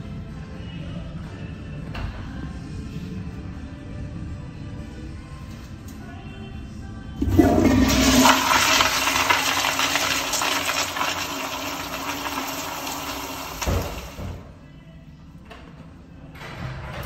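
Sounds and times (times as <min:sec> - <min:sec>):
toilet flushing: 0:07.2 - 0:14.5.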